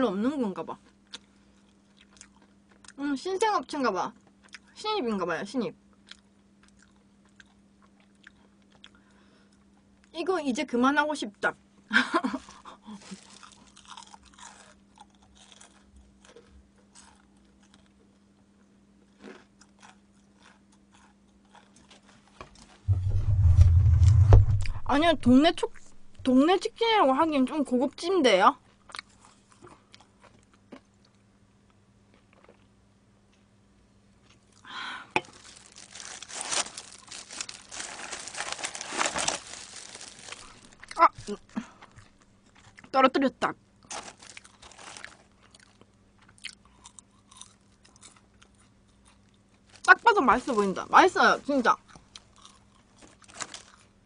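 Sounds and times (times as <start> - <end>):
crunchy chewing of fried chicken: 0.8 - 3.0, 5.9 - 10.1, 12.2 - 22.9, 28.7 - 33.4, 34.2 - 42.9, 43.8 - 50.7, 51.8 - 54.0
plastic gloves crinkling: 12.2 - 14.0, 35.2 - 42.7, 43.9 - 45.8, 49.6 - 51.7, 53.0 - 53.9
loud low rumble: 22.9 - 26.3.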